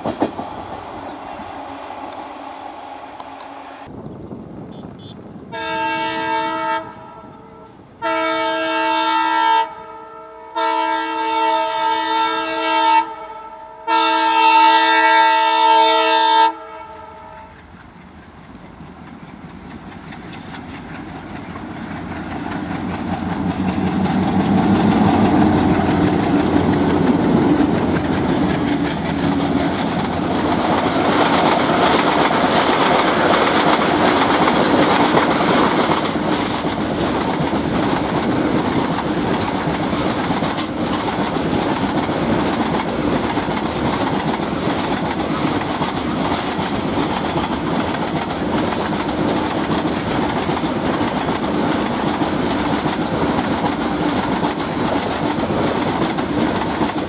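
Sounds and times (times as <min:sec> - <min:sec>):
diesel locomotive engines working: 0:00.0 - 0:08.9, 0:16.9 - 0:57.0
locomotive air horn blasts: 0:04.7 - 0:17.6
wagons rumbling and clattering: 0:18.9 - 0:57.0.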